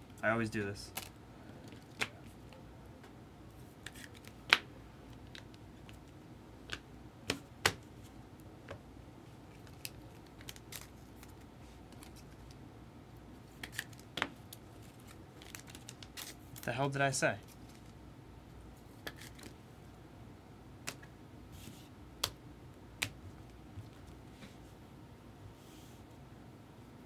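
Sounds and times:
cards and foil packs clicking: 0:13.6 - 0:16.7.

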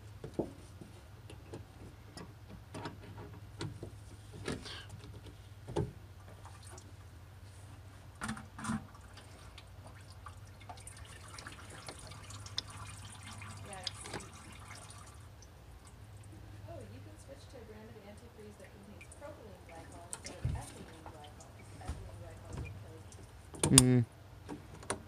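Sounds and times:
light clicks and knocks of hoses: 0:00.1 - 0:07.0.

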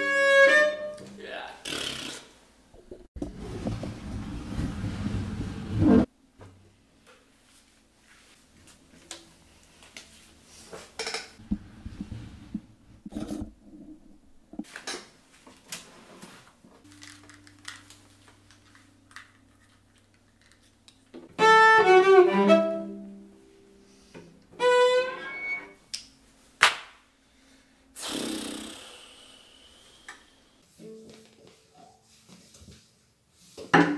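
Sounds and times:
bowed cello notes: 0:00.0 - 0:01.0, 0:21.4 - 0:23.4, 0:24.6 - 0:25.8
cello being handled: 0:08.0 - 0:14.8.

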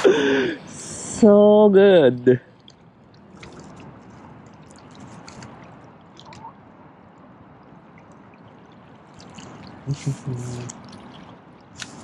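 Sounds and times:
small splashes and drips: 0:02.4 - 0:06.5, 0:07.6 - 0:12.0
water lapping at shore: 0:02.4 - 0:12.0.

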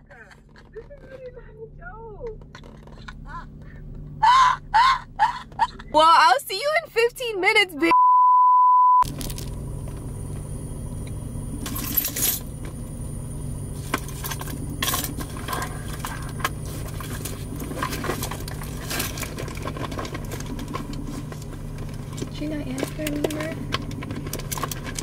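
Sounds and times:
moving car hum: 0:00.0 - 0:08.0, 0:09.0 - 0:25.0
metallic clinks and jingles: 0:11.6 - 0:12.5.

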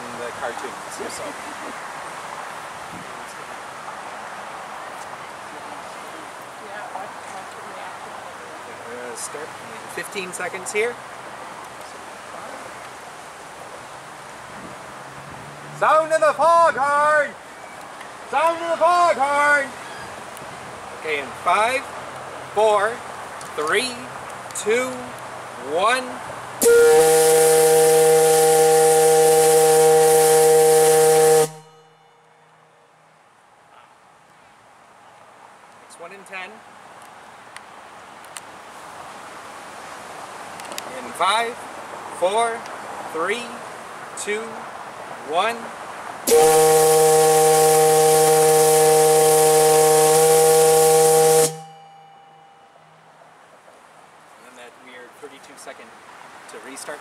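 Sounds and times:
fog signal whistle blast: 0:26.6 - 0:32.1, 0:46.3 - 0:52.8.

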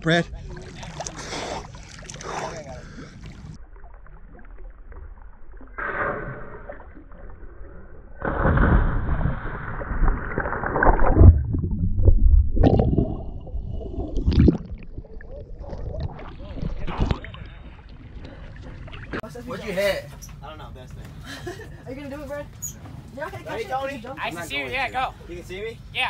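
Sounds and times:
muffled water gurgling and sloshing: 0:00.0 - 0:19.2.

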